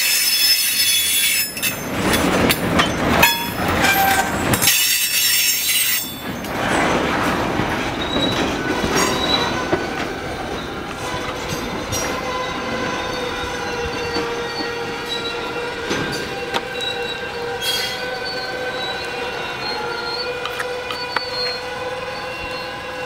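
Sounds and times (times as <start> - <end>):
rail cars rolling: 0.0 - 23.0
wheels squealing against rails: 0.0 - 23.0.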